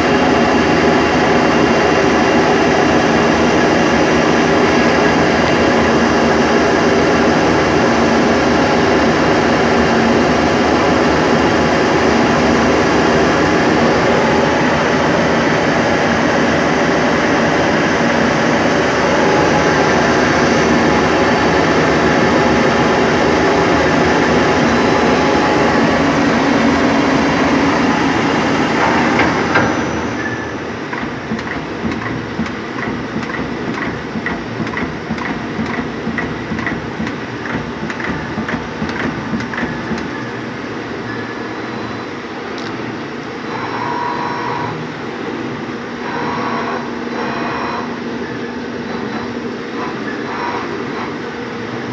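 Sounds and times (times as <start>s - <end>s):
lathe cutting metal: 9.4s - 42.2s
machine knock: 28.7s - 40.4s.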